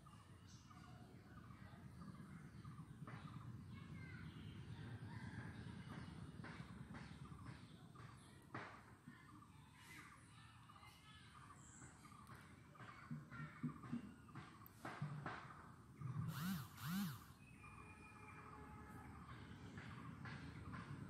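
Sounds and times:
birds calling: 9.4 - 21.0.

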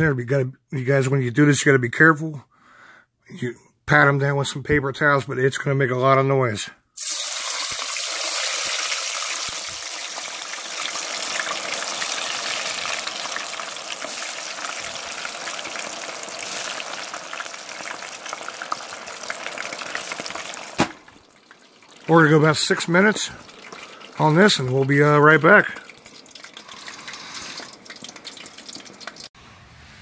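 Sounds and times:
food deep frying in oil: 7.0 - 29.4.

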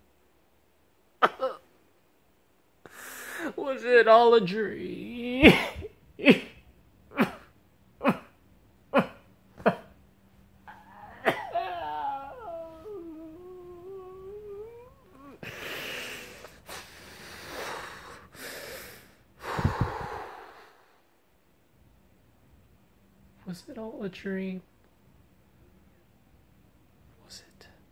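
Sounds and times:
man moaning: 8.0 - 8.3, 8.9 - 9.9, 10.7 - 16.9
man gasping: 14.4 - 20.9.

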